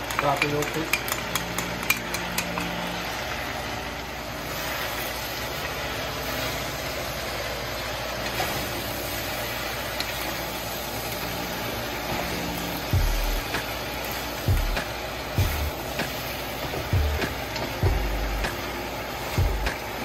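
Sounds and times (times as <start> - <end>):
spatulas tossing vegetables: 0.0 - 3.0
vegetables sizzling in a wok: 0.0 - 20.0.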